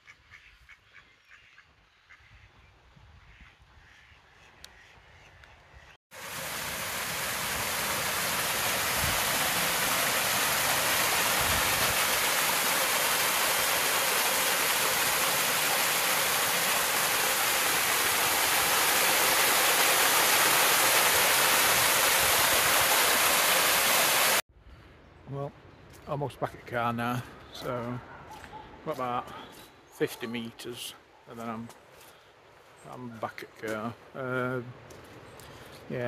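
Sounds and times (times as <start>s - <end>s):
water rushing down stone channel: 6.1s - 24.4s.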